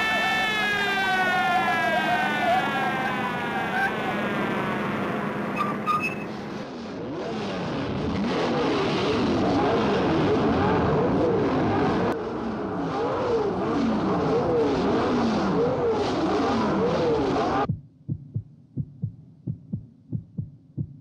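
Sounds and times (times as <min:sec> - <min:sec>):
race car engines revving: 0:01.0 - 0:17.7.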